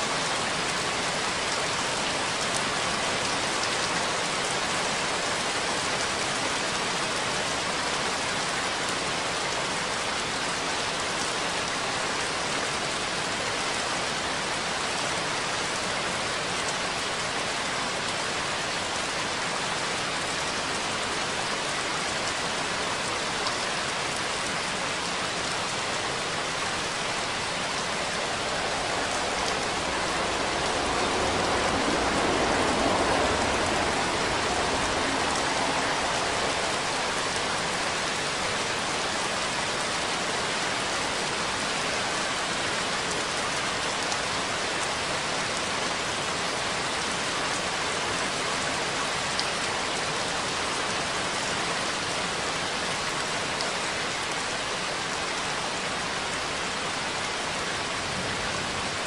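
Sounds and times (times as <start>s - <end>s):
steady rain patter: 0.0s - 59.0s
low rumble: 26.4s - 38.4s.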